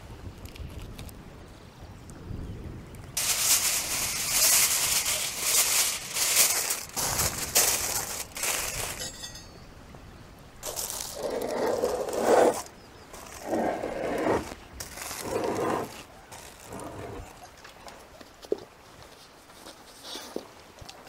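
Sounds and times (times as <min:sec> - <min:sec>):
aluminium foil crinkling: 0:03.2 - 0:09.5, 0:10.6 - 0:13.4, 0:14.8 - 0:17.4.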